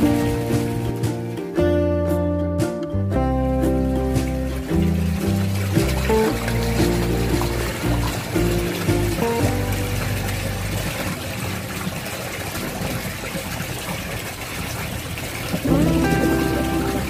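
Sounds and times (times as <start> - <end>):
background music: 0.0 - 11.2, 15.6 - 17.0
fish splashing in tank: 4.1 - 17.0.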